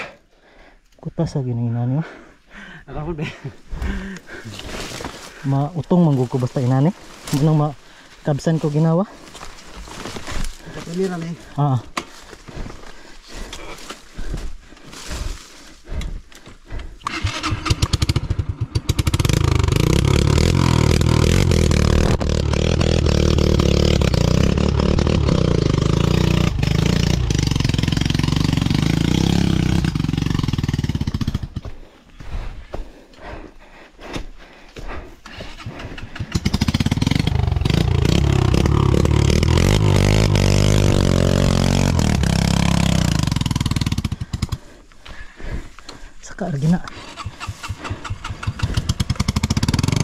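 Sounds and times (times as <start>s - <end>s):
motorcycle engine revving: 17.0s - 31.7s, 35.4s - 44.8s, 46.8s - 50.0s.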